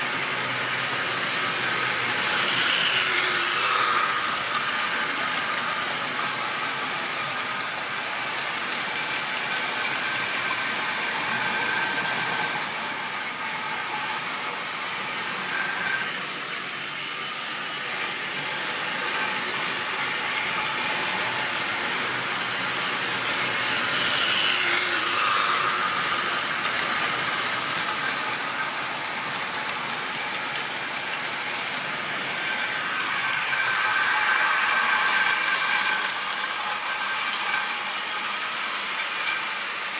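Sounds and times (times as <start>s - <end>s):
model trains whirring on track: 0.0s - 39.9s.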